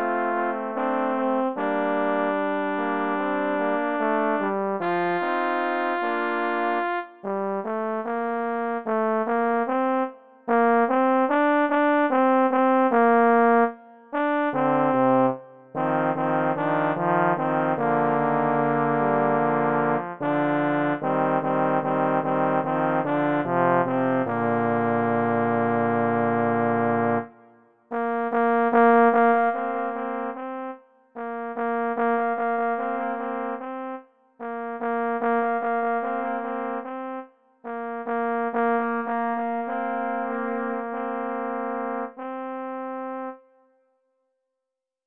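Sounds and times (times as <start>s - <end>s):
trombone trio playing: 14.5s - 27.3s.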